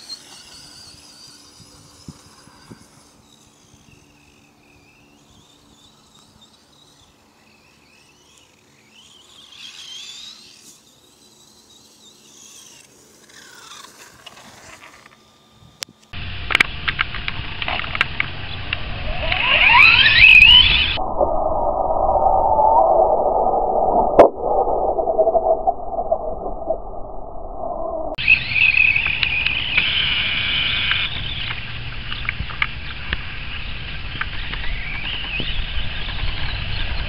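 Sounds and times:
electric motor whining: 0:00.0 - 0:21.0
rough rushing noise: 0:16.2 - 0:34.2.

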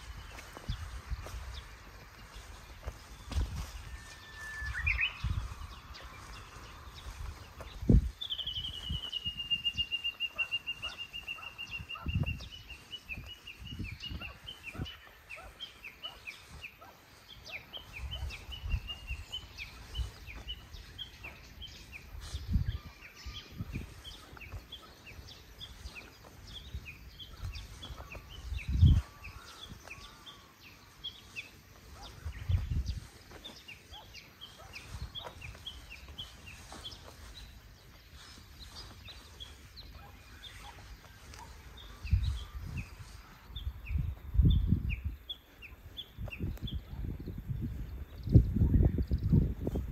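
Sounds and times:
bird whistling call series: 0:03.8 - 0:05.4, 0:08.2 - 0:12.4.

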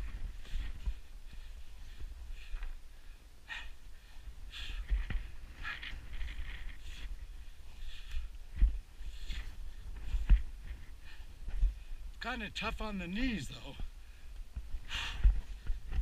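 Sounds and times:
wind rumble on microphone: 0:00.0 - 0:12.2, 0:13.8 - 0:16.0
person breathing hard: 0:00.3 - 0:12.1, 0:13.9 - 0:16.0.

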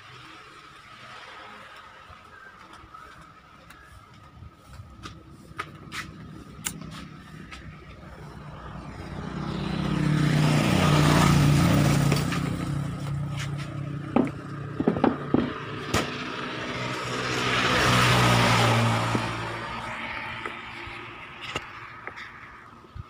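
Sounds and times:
vehicle engine revving: 0:04.9 - 0:22.3.

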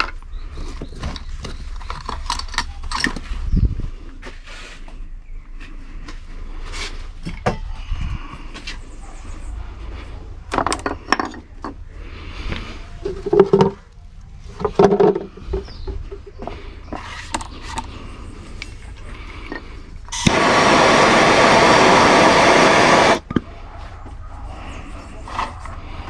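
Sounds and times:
knocks and clatter of tools: 0:10.5 - 0:11.8, 0:13.0 - 0:13.9, 0:14.5 - 0:17.9.

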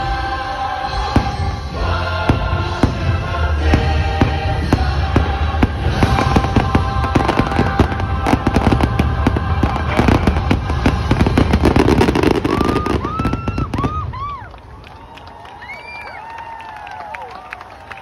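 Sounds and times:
show music: 0:00.0 - 0:14.2
fireworks bangs and crackles: 0:00.9 - 0:14.8
fireworks whistles: 0:04.8 - 0:14.3.

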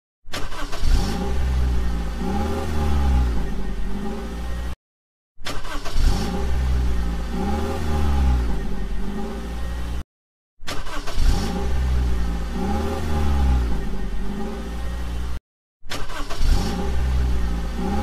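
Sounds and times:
car engine revving: 0:00.5 - 0:04.8, 0:05.5 - 0:10.0, 0:10.8 - 0:18.0.

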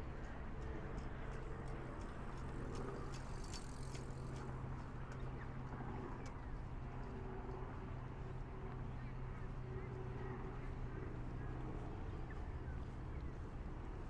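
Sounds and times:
footstep ticks on walkway: 0:00.2 - 0:04.5.

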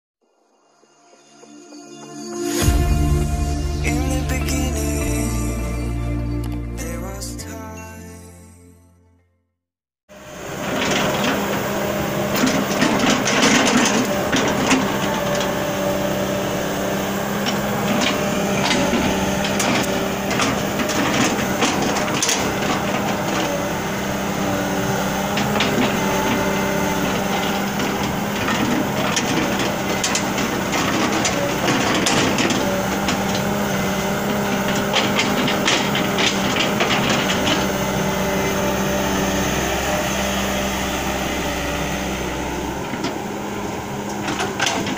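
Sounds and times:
excavator diesel engine running: 0:02.5 - 0:07.3, 0:10.1 - 0:44.9
wooden logs knocking together: 0:17.2 - 0:38.8.

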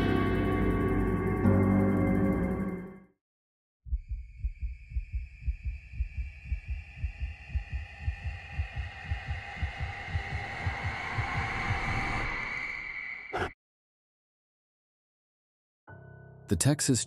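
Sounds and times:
heartbeat thumps: 0:03.9 - 0:12.1.

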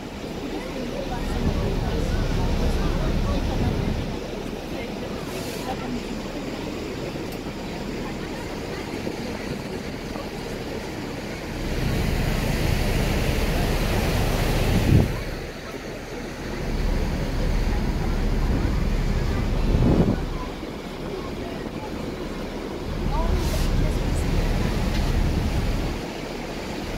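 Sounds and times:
water rushing past: 0:00.0 - 0:26.9
wind buffeting microphone: 0:11.0 - 0:15.5, 0:16.6 - 0:26.0.

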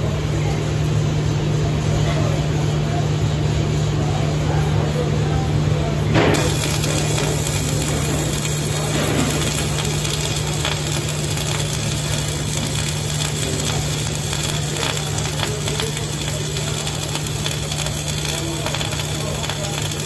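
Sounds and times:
welding arc crackling hiss: 0:06.1 - 0:20.0
sparks spitting: 0:06.2 - 0:20.0.

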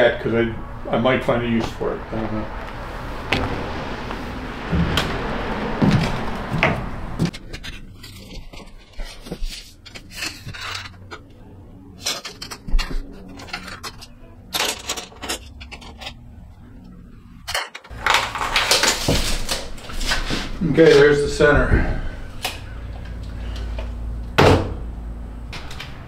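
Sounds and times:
footsteps on floor: 0:04.7 - 0:07.3.

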